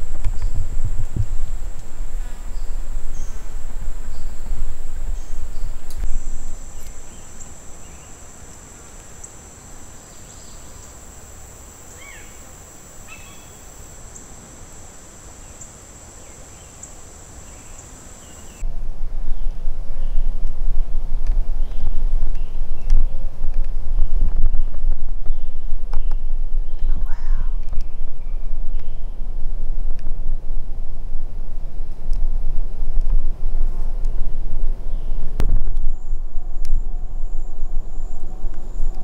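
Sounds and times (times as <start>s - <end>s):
low rumble: 0.0s - 8.2s, 18.6s - 39.0s
insects droning: 0.0s - 18.6s, 34.9s - 39.0s
faint bird chirps: 13.1s - 14.3s.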